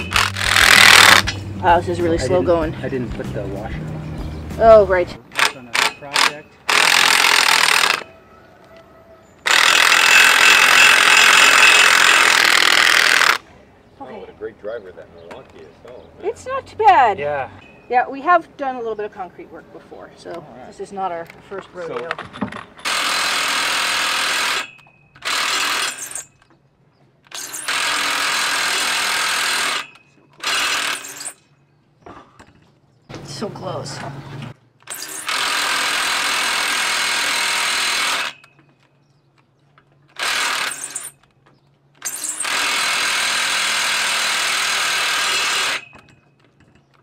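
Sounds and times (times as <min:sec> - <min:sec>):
power driver running: 0:00.0 - 0:01.3.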